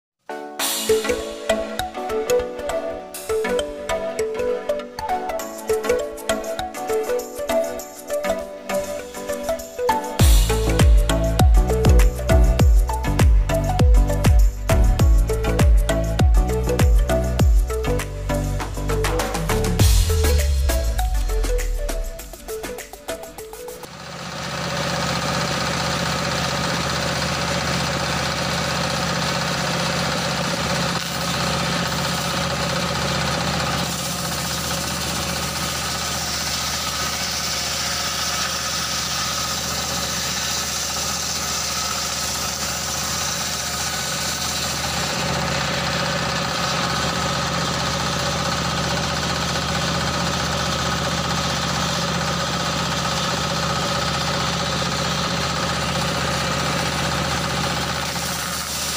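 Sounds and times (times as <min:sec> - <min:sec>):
diesel engine running: 0:10.2 - 0:58.9
circular saw ripping through log: 0:23.9 - 0:58.9.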